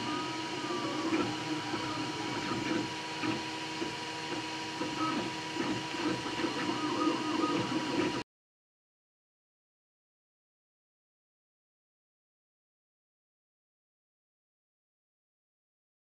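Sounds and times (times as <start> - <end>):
cooling fans humming: 0.0 - 8.2
stepper motors whining: 0.0 - 8.2.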